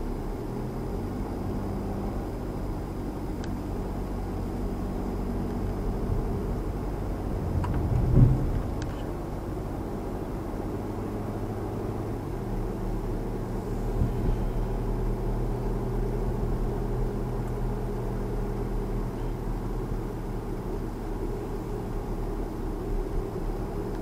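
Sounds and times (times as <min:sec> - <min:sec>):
car engine and tyre hum: 0:00.0 - 0:24.0
car bump: 0:07.4 - 0:09.1.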